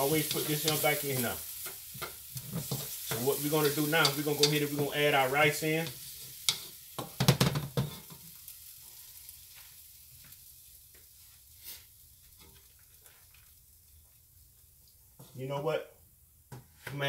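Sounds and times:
wooden spatula scraping a wok: 0.0s - 5.0s, 5.8s - 8.2s, 11.3s - 12.7s
faint sizzle: 0.0s - 17.0s.

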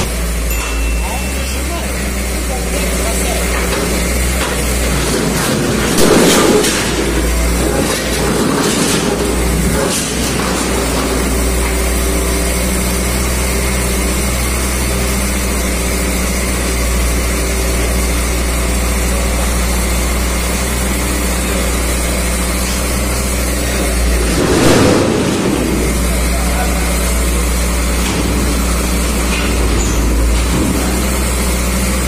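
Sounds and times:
diesel engine running: 0.0s - 32.0s.

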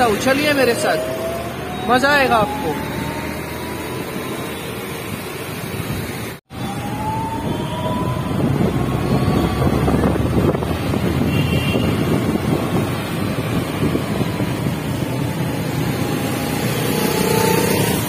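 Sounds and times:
traffic noise: 0.0s - 18.0s
wind rushing over microphone: 5.7s - 18.0s.

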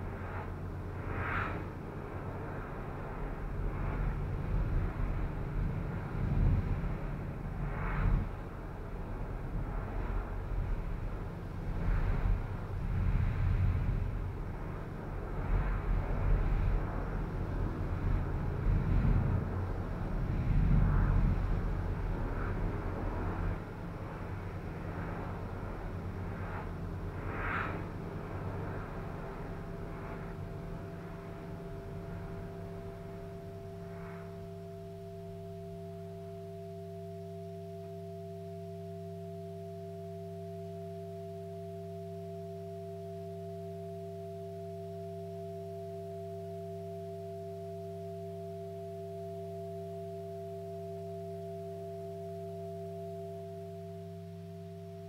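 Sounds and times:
electronic drone: 24.3s - 55.0s.

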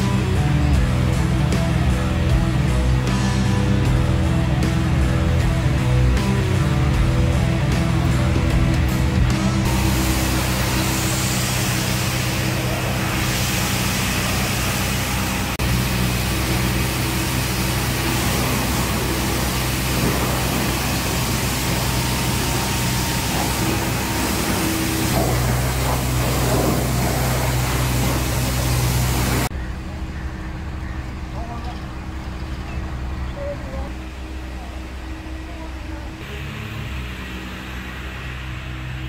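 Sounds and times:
pressure washer motor hum: 0.0s - 39.0s
water jet hissing: 9.6s - 29.5s, 36.2s - 39.0s.

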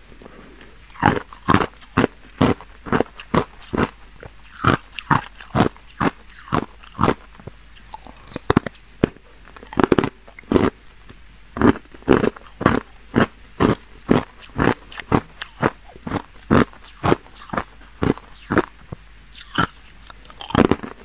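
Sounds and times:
ice being chewed and crunched: 0.8s - 7.2s, 11.6s - 18.7s, 19.3s - 21.0s.

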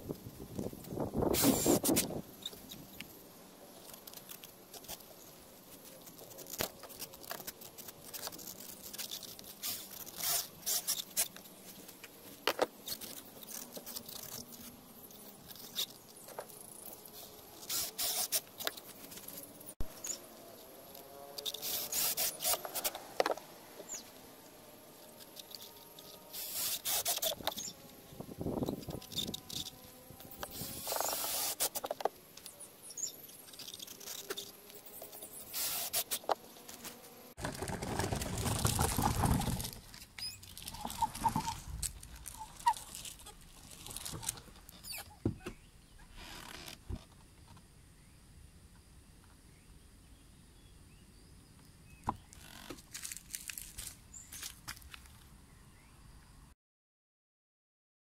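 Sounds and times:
rubber tyre rubbing on plastic wheel: 21.3s - 24.0s, 28.6s - 32.1s, 35.2s - 45.1s.

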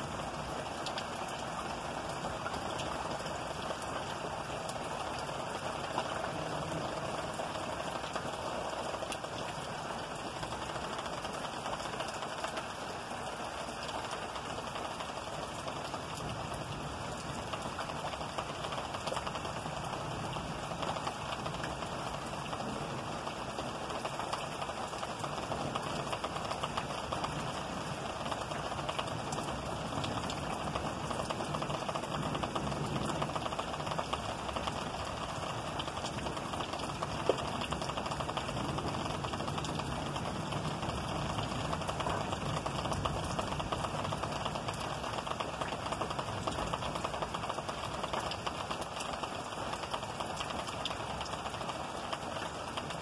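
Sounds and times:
heavy rain: 0.0s - 53.0s.

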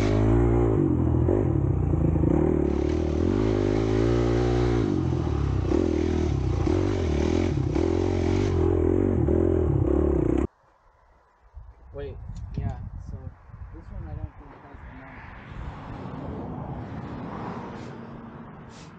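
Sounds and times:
dirt bike engine revving: 0.0s - 10.5s.

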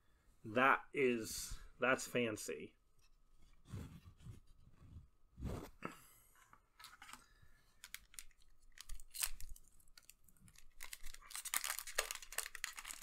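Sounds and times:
foil pack tearing open: 7.8s - 13.0s
foil wrapper crinkling: 7.8s - 13.0s.

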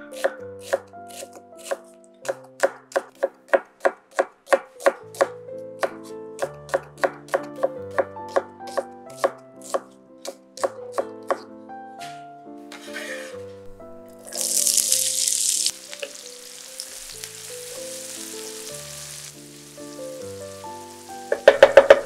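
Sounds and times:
knife chopping on cutting board: 0.2s - 12.2s, 21.2s - 22.0s.

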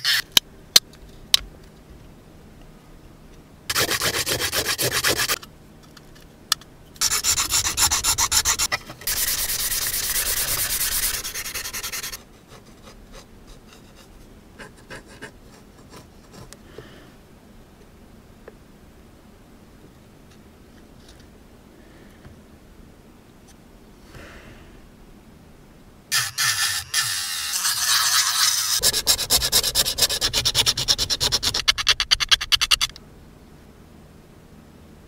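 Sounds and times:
sandpaper rubbing on plastic: 0.0s - 0.3s, 3.7s - 5.4s, 7.0s - 16.5s, 26.1s - 32.9s.

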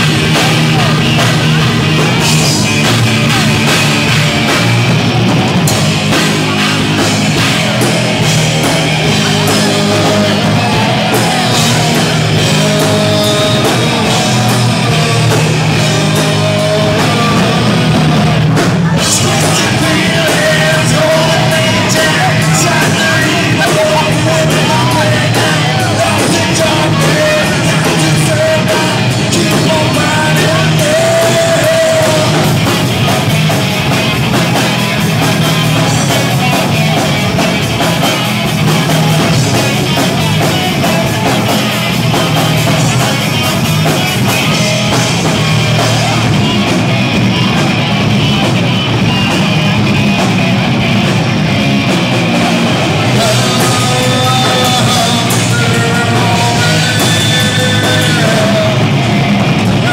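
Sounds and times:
person singing: 0.0s - 4.8s, 5.6s - 50.7s, 51.8s - 59.9s
rock band playing: 0.0s - 59.9s.

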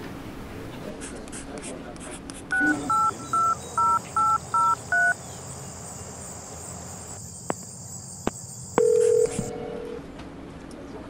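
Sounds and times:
phone keypad beeps: 2.5s - 5.2s, 8.8s - 9.5s
high insect hiss: 4.0s - 9.3s.

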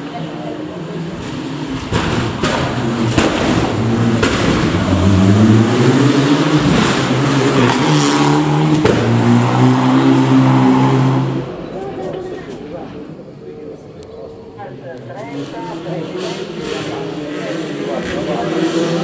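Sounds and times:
rally car engines revving: 0.0s - 19.0s
sharp exhaust cracks: 1.2s - 5.8s.

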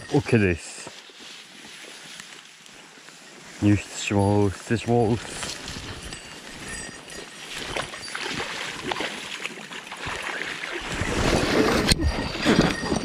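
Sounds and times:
rustling through tall grass: 0.0s - 13.0s
sloshing steps in water: 7.5s - 11.8s.

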